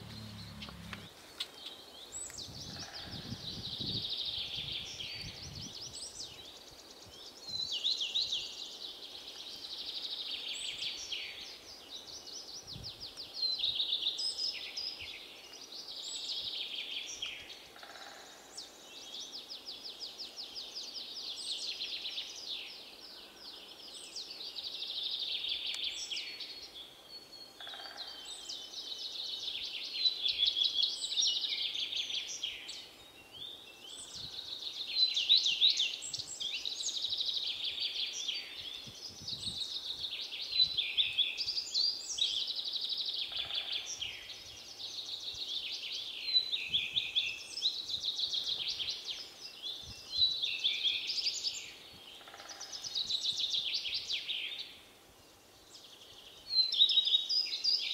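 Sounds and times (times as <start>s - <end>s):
swallows twittering: 0.0s - 1.8s.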